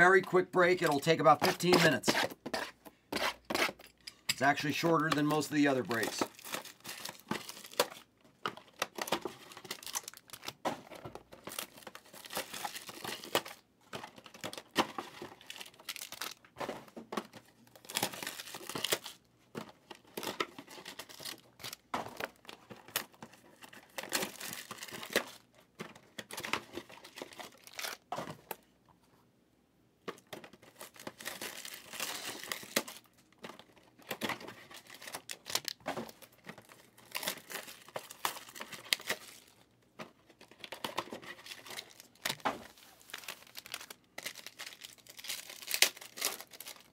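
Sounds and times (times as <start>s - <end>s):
foil packs ripping and crinkling: 4.4s - 10.6s, 11.4s - 13.6s, 14.2s - 16.5s, 17.7s - 19.2s, 19.9s - 21.8s, 22.9s - 25.5s, 26.2s - 28.1s, 30.6s - 33.7s, 34.3s - 39.7s, 40.4s - 46.9s.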